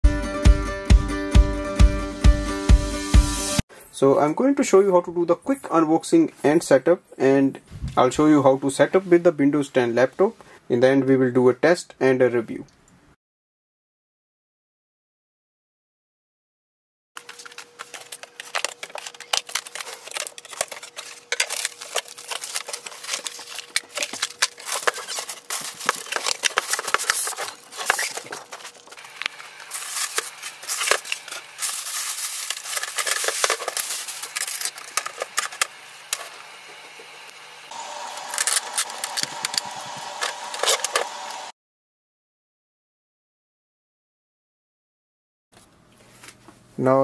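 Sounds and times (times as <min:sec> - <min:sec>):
foam and cardboard squeaking: 0:17.2 - 0:36.2
plastic bag rustling: 0:17.2 - 0:37.2, 0:38.1 - 0:41.3
packing tape pulled off plastic: 0:17.2 - 0:37.4, 0:38.1 - 0:41.4.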